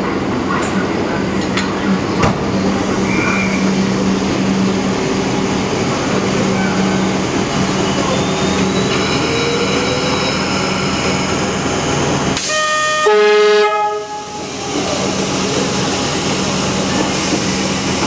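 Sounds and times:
electric hum of trains: 0:00.0 - 0:18.0
train horn: 0:12.4 - 0:14.4.

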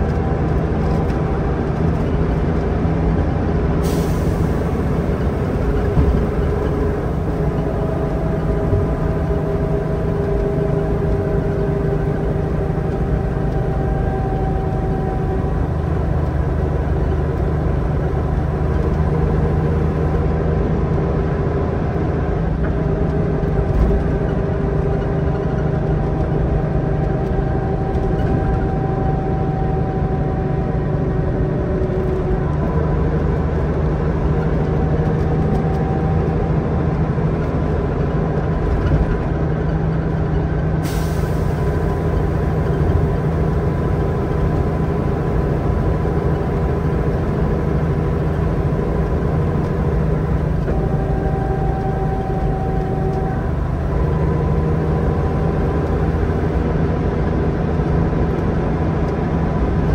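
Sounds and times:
bus engine drone: 0:00.0 - 0:59.9
road noise: 0:00.0 - 0:59.9
faint whining tones: 0:41.1 - 0:56.6.

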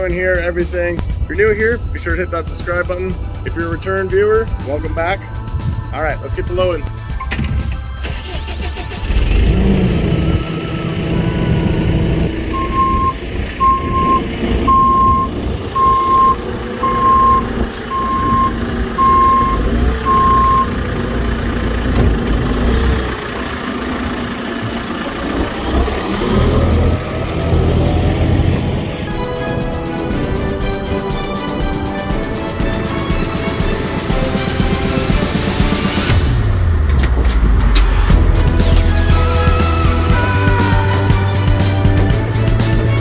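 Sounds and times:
diesel engine revving: 0:07.1 - 0:43.0
reversing alarm beeping: 0:10.4 - 0:20.8.

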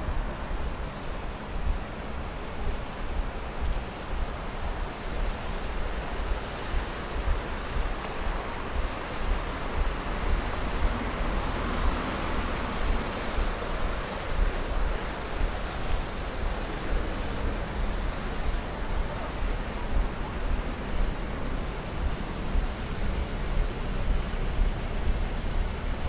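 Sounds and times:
stream water flowing: 0:00.0 - 0:26.0
wind buffeting microphone: 0:00.0 - 0:26.0.

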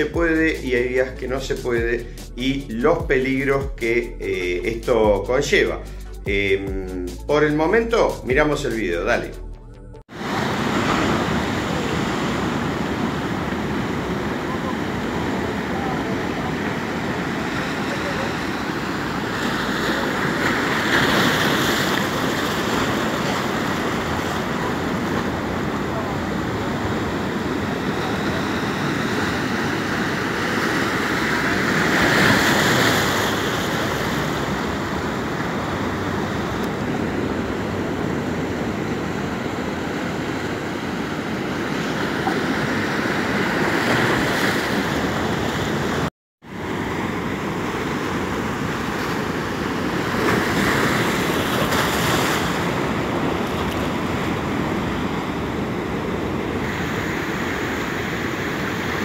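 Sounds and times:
surf breaking over rocks: 0:10.1 - 0:59.0.

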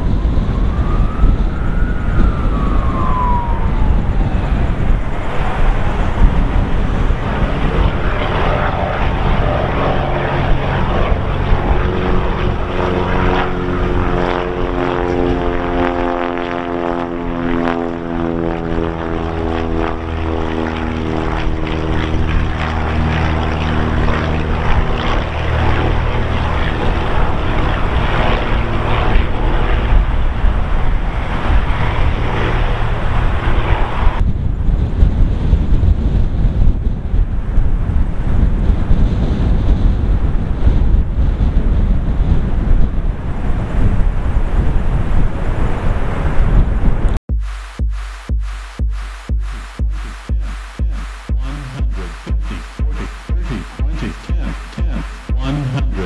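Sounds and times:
propeller plane flying past: 0:00.0 - 0:34.2
wind buffeting microphone: 0:00.0 - 0:47.2.

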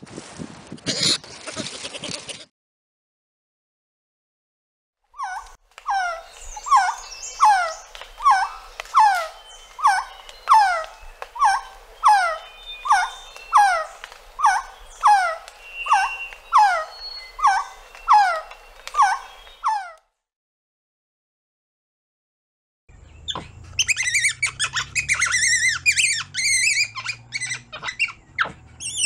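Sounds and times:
bird calling downslurred notes: 0:05.2 - 0:20.0.

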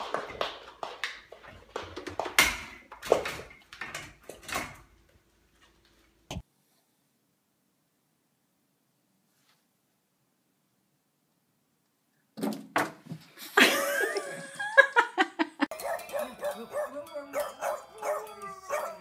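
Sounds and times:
dog howling and yipping: 0:15.8 - 0:19.0.

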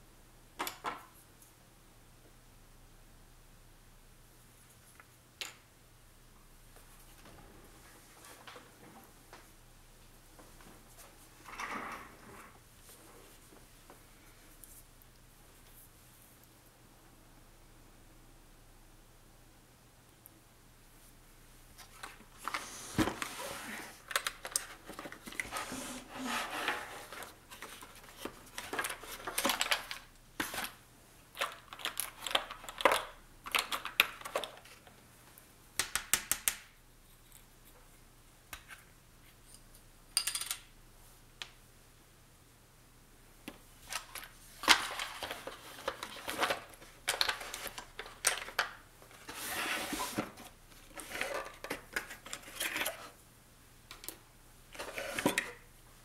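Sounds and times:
hands rummaging through plastic containers: 0:21.9 - 0:30.8, 0:43.9 - 0:53.2.

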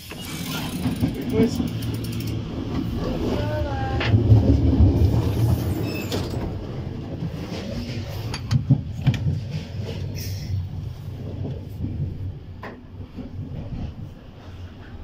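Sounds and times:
automatic sliding door: 0:00.0 - 0:03.4, 0:04.0 - 0:06.9
train rumble from inside coach: 0:00.0 - 0:15.0
sharp clicks and knocks: 0:07.5 - 0:09.7.

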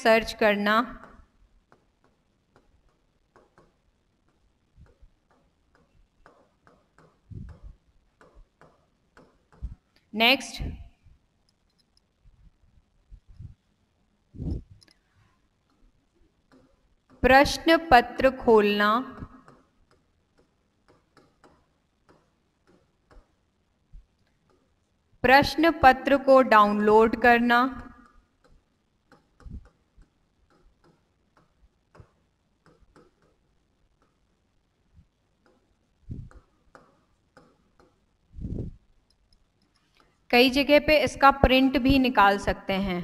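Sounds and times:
pen tapping and scratching: 0:01.0 - 0:09.9, 0:15.6 - 0:17.7, 0:18.9 - 0:23.5, 0:24.1 - 0:25.5, 0:27.8 - 0:34.4, 0:35.2 - 0:38.2
soft low thumps: 0:07.3 - 0:07.9, 0:14.3 - 0:14.8, 0:36.0 - 0:36.5, 0:38.4 - 0:38.8.

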